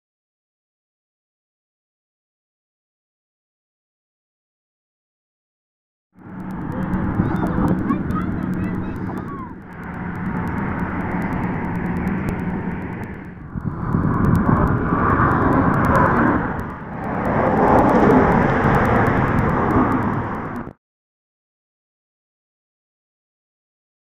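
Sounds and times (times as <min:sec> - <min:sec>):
wind buffeting microphone: 0:06.2 - 0:20.8.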